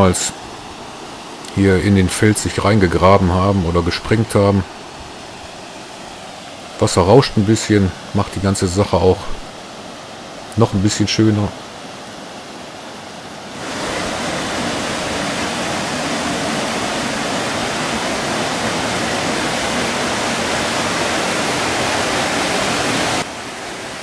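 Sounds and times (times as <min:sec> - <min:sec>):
water rushing through lock gates: 0:00.0 - 0:24.0.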